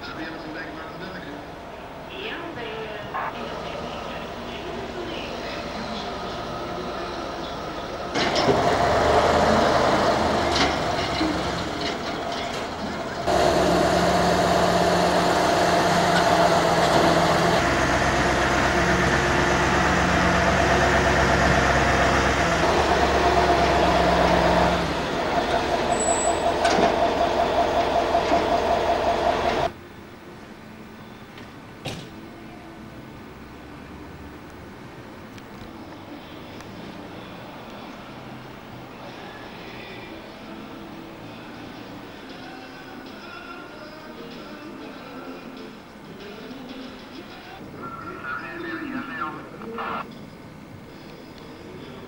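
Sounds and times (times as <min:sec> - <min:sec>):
background noise: 0:00.0 - 0:13.3, 0:14.5 - 0:52.0
heavy engine droning: 0:02.6 - 0:29.8.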